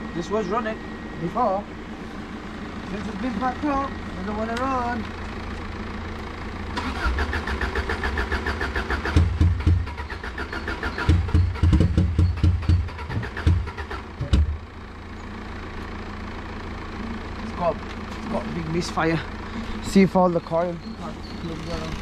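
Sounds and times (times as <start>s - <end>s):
engine running roughly misfiring: 0.0s - 22.0s
car starter cranking: 6.7s - 14.6s.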